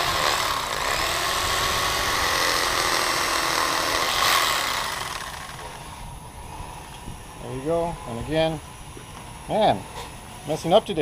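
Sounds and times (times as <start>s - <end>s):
electric fillet knife buzzing: 0.0s - 5.8s.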